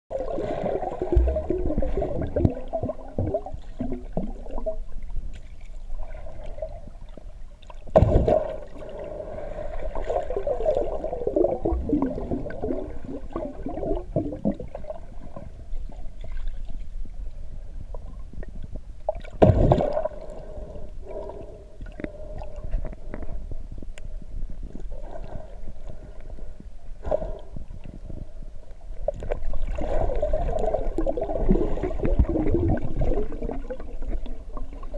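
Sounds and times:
underwater gurgling and bubbling: 0.1s - 23.6s, 27.0s - 34.9s.

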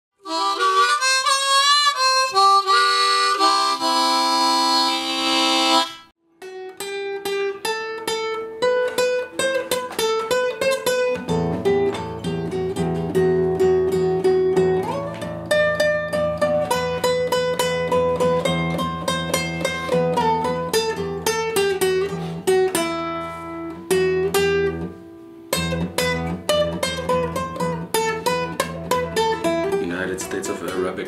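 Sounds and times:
blues harmonica: 0.2s - 6.1s, 13.6s - 24.8s
classical guitar plucked: 0.2s - 31.0s.

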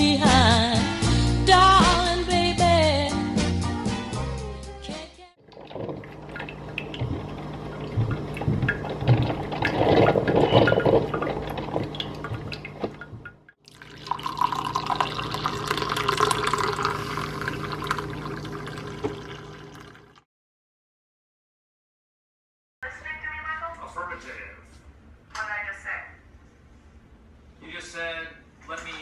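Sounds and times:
coffee maker hissing and gurgling: 13.7s - 20.2s
coffee pouring into mug: 13.7s - 20.2s.

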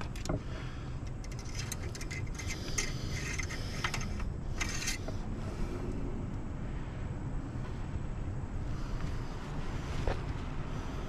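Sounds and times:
metal dipstick rattling in tube: 1.1s - 5.1s.

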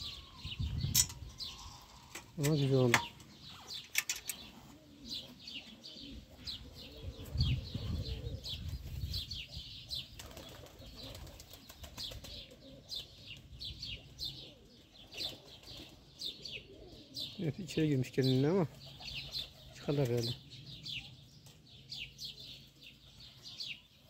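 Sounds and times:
birds chirping: 0.0s - 24.0s
pigeons flapping wings: 10.2s - 12.6s.

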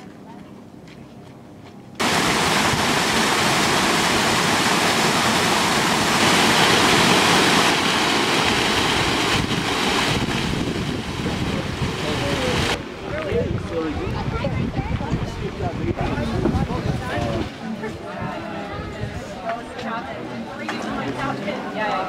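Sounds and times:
fast-running water rushing: 2.0s - 13.0s.

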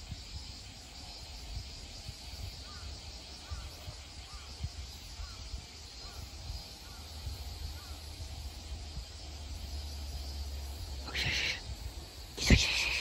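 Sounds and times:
faint high hiss: 0.0s - 13.0s
loud hissing buzz: 0.0s - 13.0s.

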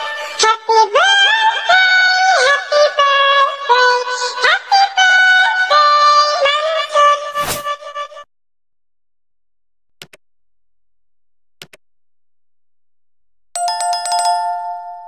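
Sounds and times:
mouse double clicks: 11.6s - 11.8s
notification bell chime: 13.6s - 15.0s.

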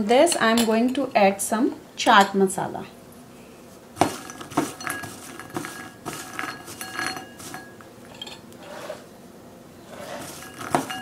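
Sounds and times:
fried snacks clinking in ceramic bowl: 4.1s - 8.4s, 10.2s - 11.0s.

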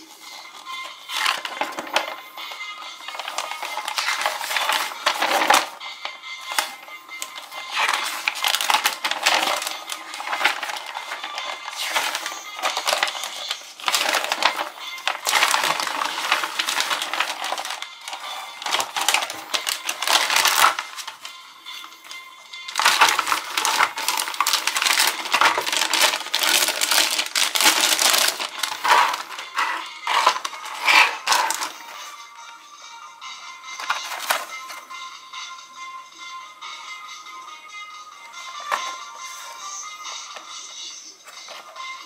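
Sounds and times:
foil and plastic bag crumpling: 0.0s - 2.2s, 3.0s - 5.8s, 6.4s - 21.4s, 22.0s - 32.2s, 33.8s - 34.8s
magazine pages turning: 0.2s - 2.2s, 3.0s - 5.8s, 6.4s - 21.4s, 22.0s - 32.2s, 33.8s - 34.8s, 38.6s - 39.7s, 41.3s - 41.8s.

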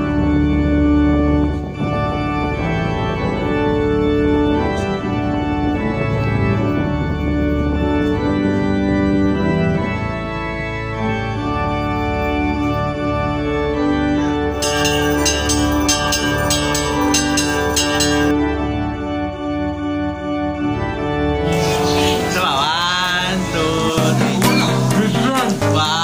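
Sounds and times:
organ chords: 0.0s - 26.0s
bright ticking: 14.6s - 18.3s.

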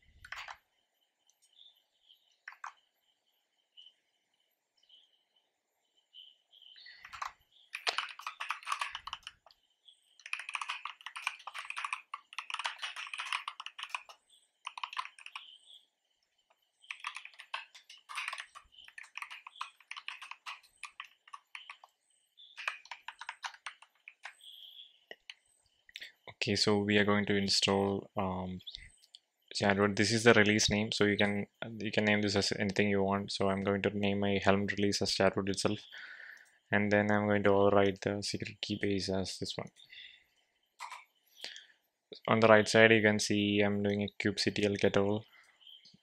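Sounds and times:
typing on a computer keyboard: 0.2s - 0.6s, 2.4s - 2.8s, 7.0s - 9.6s, 10.2s - 15.6s, 16.8s - 24.4s.

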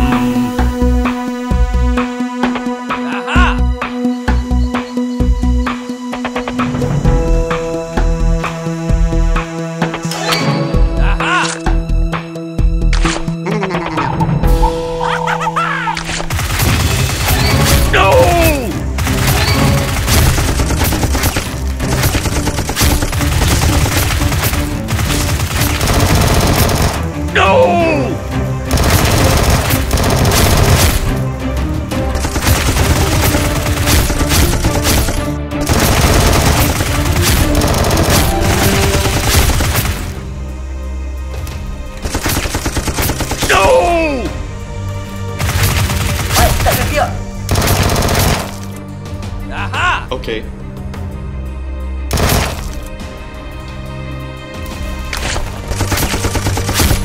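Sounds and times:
background music: 0.0s - 57.0s
automatic gunfire: 19.0s - 27.1s, 28.7s - 31.1s, 32.2s - 40.2s, 45.4s - 48.7s, 52.1s - 52.8s, 55.7s - 57.0s.

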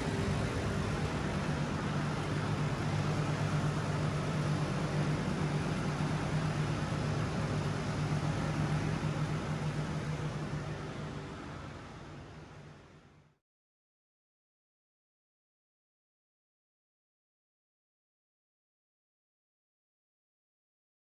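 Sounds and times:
constant hiss: 0.0s - 13.0s
low machine hum: 0.0s - 13.4s.

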